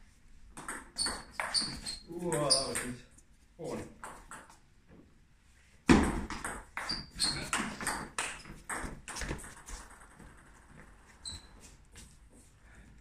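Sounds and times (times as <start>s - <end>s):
table tennis ball clacking: 0.6s - 1.7s, 4.0s - 4.6s, 5.9s - 10.6s
ball bounce ping: 0.6s - 1.8s, 4.0s - 4.6s, 5.9s - 10.6s.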